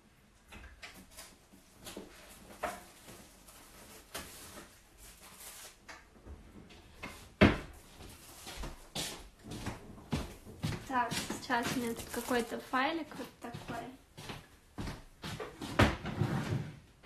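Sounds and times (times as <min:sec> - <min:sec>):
rummaging and handling objects: 0:10.9 - 0:13.8.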